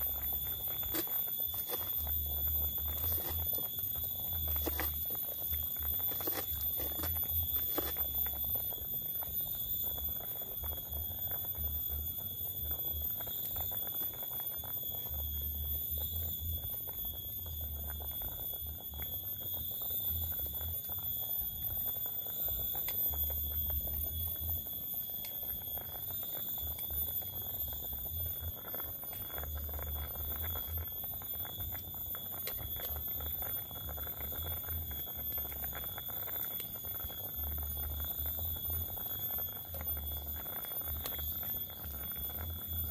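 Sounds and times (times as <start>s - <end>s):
steady high-pitched drone: 0.0s - 9.6s.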